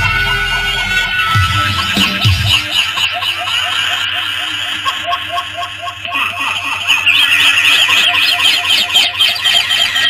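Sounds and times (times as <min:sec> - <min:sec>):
steady repeating pulse: 0:00.0 - 0:06.0
birds chirping: 0:00.0 - 0:10.0.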